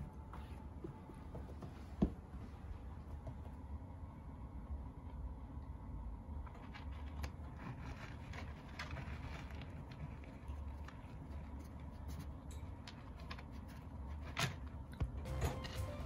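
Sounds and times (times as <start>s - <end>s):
cat shifting in pellet litter: 6.5s - 16.0s.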